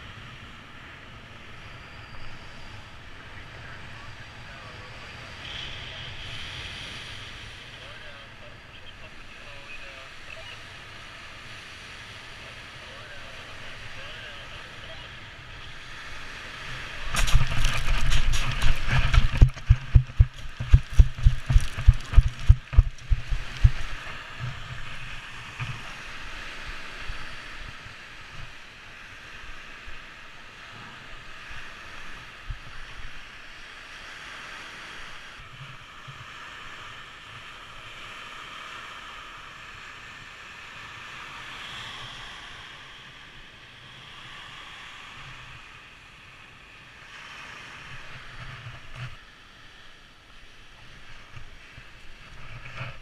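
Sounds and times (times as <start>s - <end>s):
waves washing on shore: 0.0s - 53.0s
wind rushing over microphone: 10.8s - 38.5s
running footsteps on pebbles: 17.2s - 24.8s.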